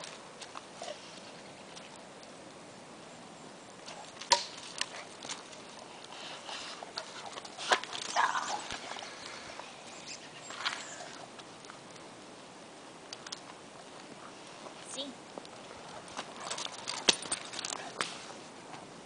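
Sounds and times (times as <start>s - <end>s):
dog paws on dirt path: 0.0s - 2.2s, 3.8s - 18.9s
rustling: 3.7s - 19.0s.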